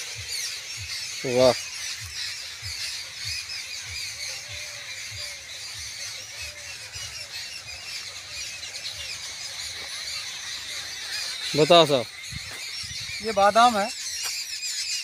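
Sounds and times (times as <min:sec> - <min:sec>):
small birds chirping: 0:00.0 - 0:15.0
footsteps on dry ground: 0:12.0 - 0:14.5.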